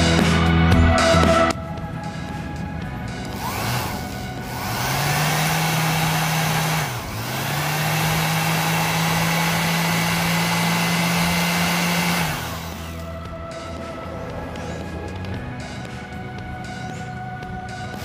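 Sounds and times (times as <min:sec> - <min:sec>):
orbital sander motor hum: 0:03.0 - 0:13.7.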